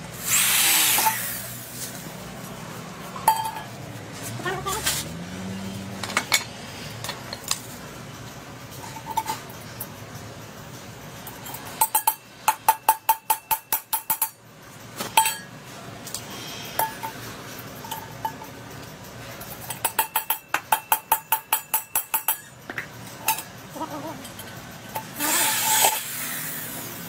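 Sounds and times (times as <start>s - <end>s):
metal tool tapping copper pot: 3.2s - 3.7s, 11.3s - 14.4s, 19.6s - 23.5s.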